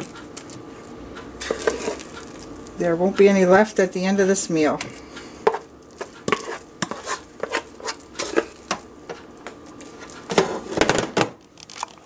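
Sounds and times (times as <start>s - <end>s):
spoon scraping and knocking pot: 1.4s - 2.3s, 5.4s - 8.8s.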